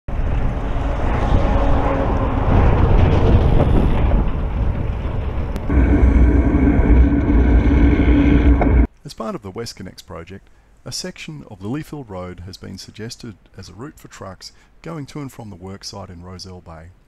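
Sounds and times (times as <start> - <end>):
trucks passing: 0.2 - 8.9
truck engine drone: 5.0 - 8.9.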